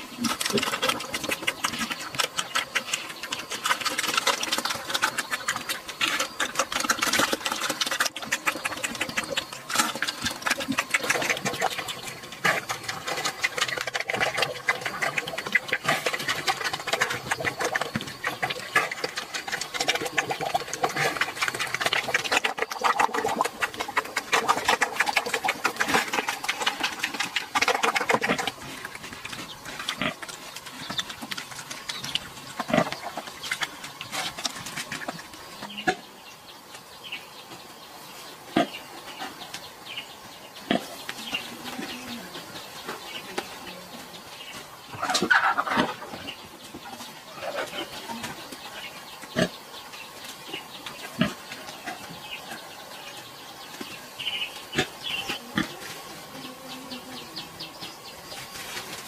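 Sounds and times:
pigs crunching feed pellets: 0.0 - 36.1, 40.6 - 59.0.

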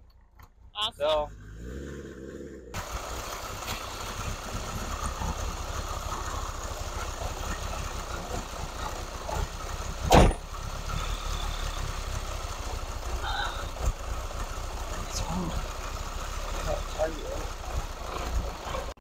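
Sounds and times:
car engine idling: 0.0 - 19.0
sharp bang: 10.1 - 10.4.

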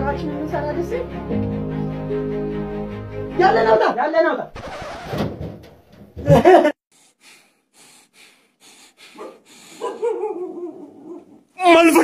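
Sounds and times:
short quick breaths: 6.9 - 10.0.

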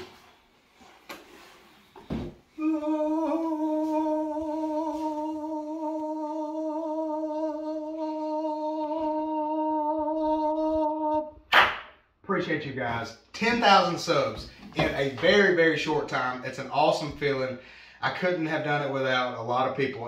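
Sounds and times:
person humming a long note: 2.6 - 11.4.

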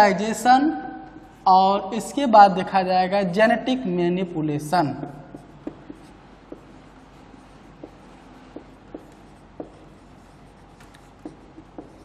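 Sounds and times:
marker pen scratching on whiteboard: 5.0 - 12.0.

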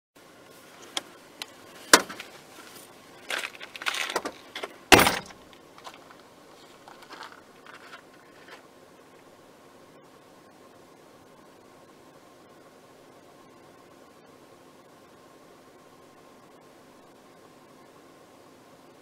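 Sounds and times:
rustling: 0.4 - 8.7
small clatters: 0.8 - 8.7.

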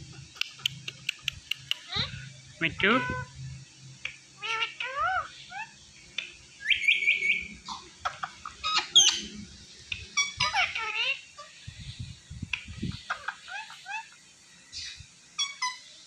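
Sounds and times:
parakeets chirping and squawking: 0.4 - 3.4, 4.0 - 16.0.

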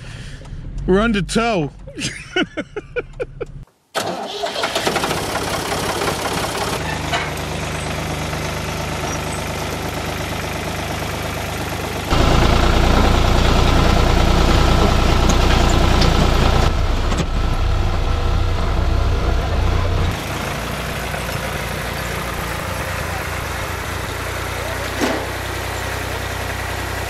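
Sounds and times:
tractor engine running: 0.0 - 27.0.

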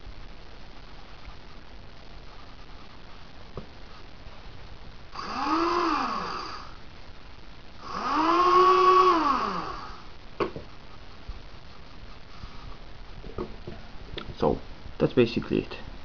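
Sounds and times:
electric motors whining: 5.2 - 6.7, 7.8 - 10.1.

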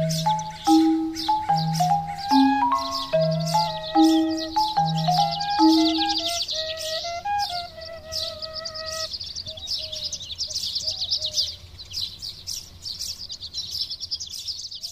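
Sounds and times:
keyboard melody: 0.0 - 9.1
birds chirping rapidly: 0.0 - 14.9.

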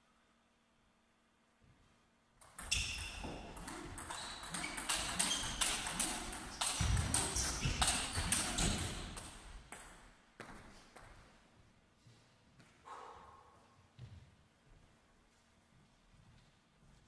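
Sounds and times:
footsteps thudding and squeaking: 2.6 - 9.7.

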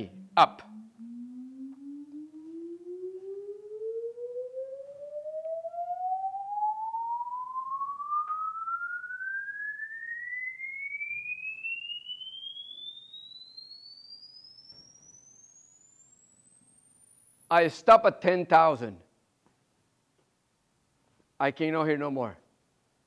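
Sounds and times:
rising pure tone sweep: 0.0 - 19.3.

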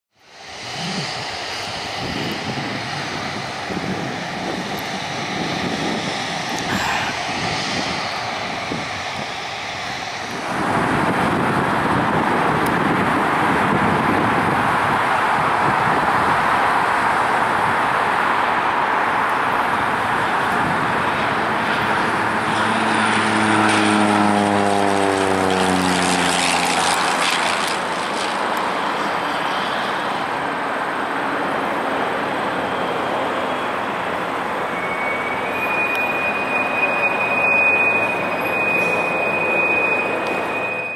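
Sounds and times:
propeller plane droning past: 0.2 - 40.9
high whistle: 34.7 - 40.9.

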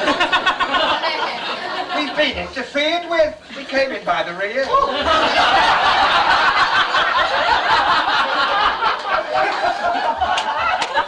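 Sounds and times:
audience laughing: 0.0 - 2.5, 4.7 - 11.0.

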